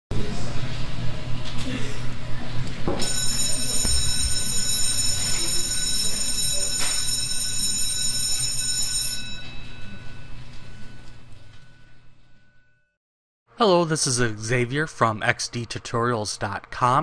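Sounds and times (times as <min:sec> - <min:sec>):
high-pitched ringing tones: 0:03.0 - 0:12.9.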